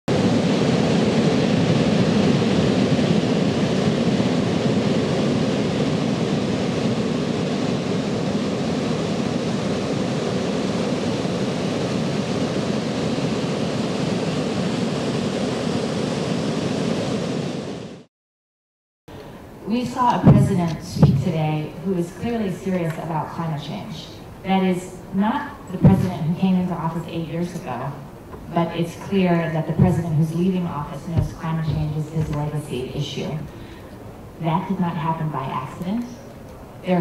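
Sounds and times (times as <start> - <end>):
ocean waves breaking on beach: 0.1 - 18.1.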